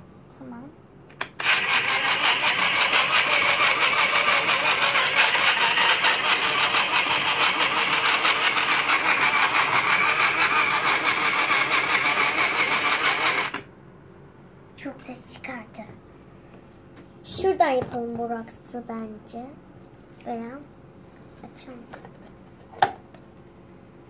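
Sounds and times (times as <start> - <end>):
small motor rattling: 1.4 - 13.6.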